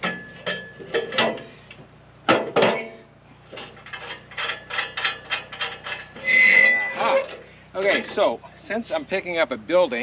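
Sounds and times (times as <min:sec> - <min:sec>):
metallic clinks and scrapes: 0:02.7 - 0:08.0.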